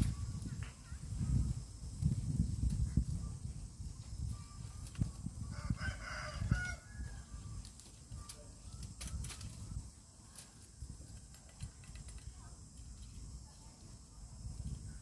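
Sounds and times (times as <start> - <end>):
bamboo brush rustling and cracking: 0.0 - 14.9
rooster crowing: 5.4 - 7.4.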